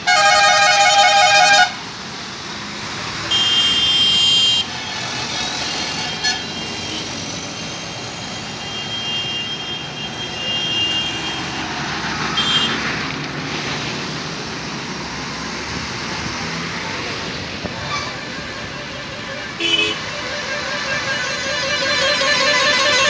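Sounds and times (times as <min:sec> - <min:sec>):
traffic rumbling past: 0:00.0 - 0:23.0
high-pitched horn held: 0:17.8 - 0:23.0.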